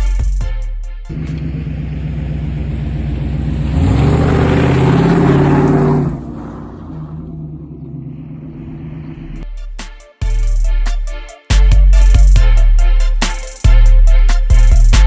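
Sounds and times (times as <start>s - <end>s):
truck driving through mud puddle: 1.1s - 9.4s
truck engine revving: 1.1s - 9.4s.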